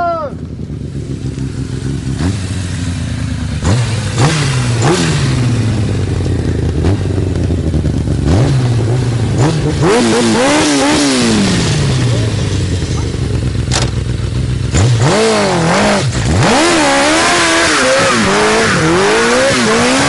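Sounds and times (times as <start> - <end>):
vehicle engine idling and revving: 0.0 - 20.0.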